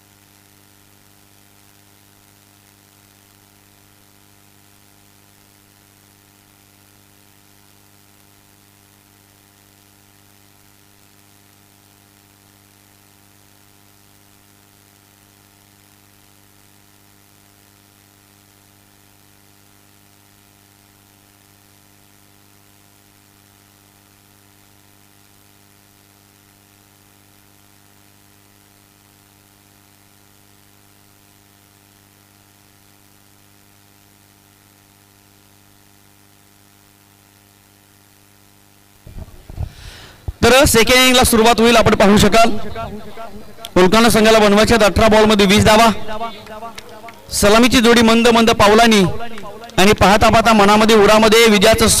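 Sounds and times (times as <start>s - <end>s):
faint hiss: 0.0s - 52.0s
electrical mains hum: 36.7s - 52.0s
loud irregular noise: 39.1s - 52.0s.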